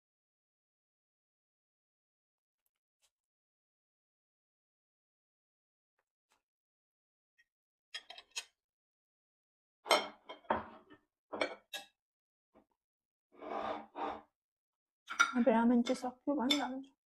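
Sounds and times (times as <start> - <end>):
ceramic plates clinking: 15.1 - 16.8.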